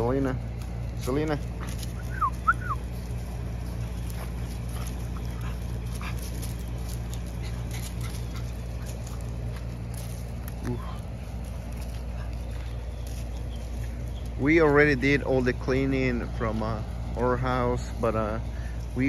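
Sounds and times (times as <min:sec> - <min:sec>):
faint rustles: 0:00.0 - 0:19.0
steady low hum: 0:00.0 - 0:19.0
dog yipping: 0:02.0 - 0:02.8.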